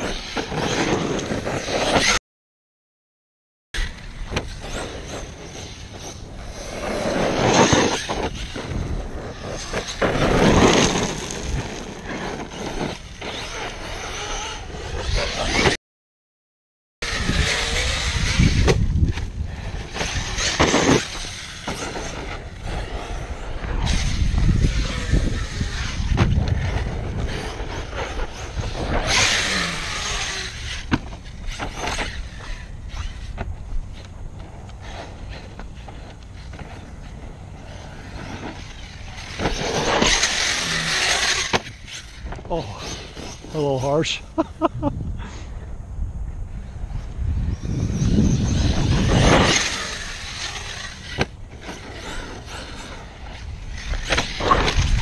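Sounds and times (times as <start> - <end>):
rc truck motor and tyres on dirt: 0.0 - 2.2, 3.8 - 15.8, 17.0 - 55.0
wind buffeting microphone: 17.0 - 20.6, 21.2 - 39.7, 44.2 - 55.0.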